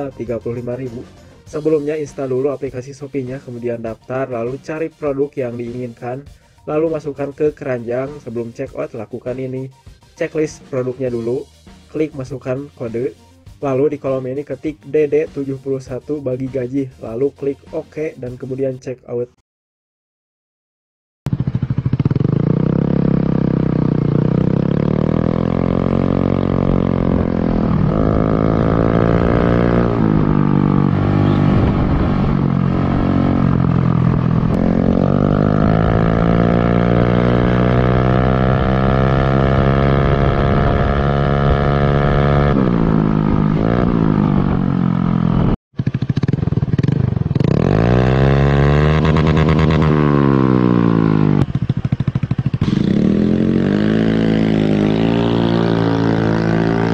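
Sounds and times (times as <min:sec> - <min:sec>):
scooter engine revving: 0:21.3 - 0:56.9.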